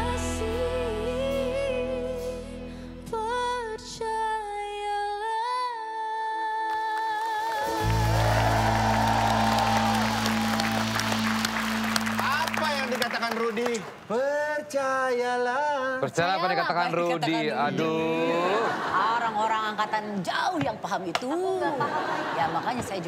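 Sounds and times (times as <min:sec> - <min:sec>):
woman singing a pop ballad: 0:00.0 - 0:08.0
audience applause: 0:07.5 - 0:14.2
live band playing: 0:07.6 - 0:13.4.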